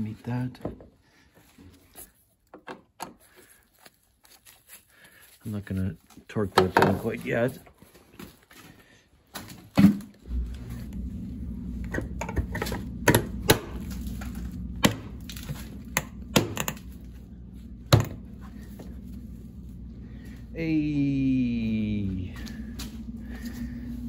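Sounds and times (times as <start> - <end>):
steady low hum: 10.0 - 24.0.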